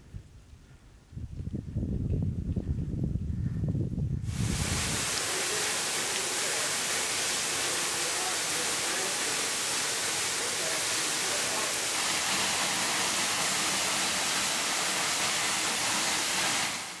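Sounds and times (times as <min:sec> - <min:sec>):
waterfall rushing: 0:04.3 - 0:17.0.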